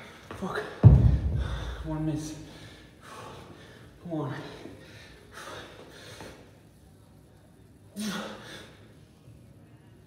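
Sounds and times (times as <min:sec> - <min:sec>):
man breathing hard: 0:01.2 - 0:03.9.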